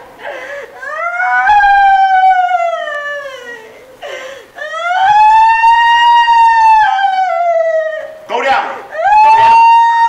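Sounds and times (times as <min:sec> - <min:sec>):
gasping breath: 0:00.2 - 0:01.0, 0:03.2 - 0:04.8
woman wailing: 0:00.2 - 0:08.3, 0:08.9 - 0:10.0.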